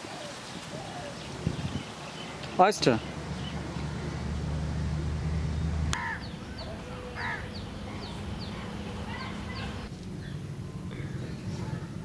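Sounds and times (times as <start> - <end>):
small birds chirping: 0.4 - 12.0
crow cawing: 5.9 - 6.4, 7.0 - 8.1.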